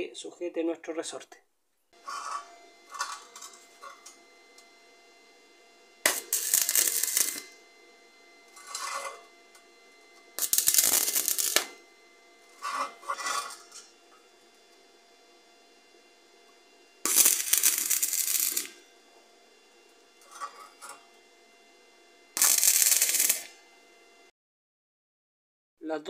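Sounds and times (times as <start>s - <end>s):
welding arc crackling: 2.0s - 4.6s, 6.0s - 7.6s, 8.4s - 14.0s, 17.0s - 18.8s, 20.2s - 21.0s, 22.3s - 23.6s.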